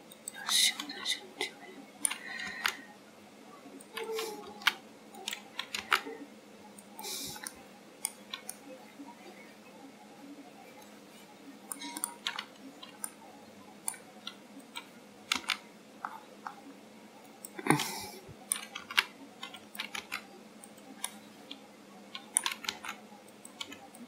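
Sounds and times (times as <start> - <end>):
keyboard and mouse clicking: 2.0 - 2.8, 3.8 - 6.1, 6.8 - 8.6, 11.7 - 13.2, 13.8 - 16.6, 18.5 - 24.0.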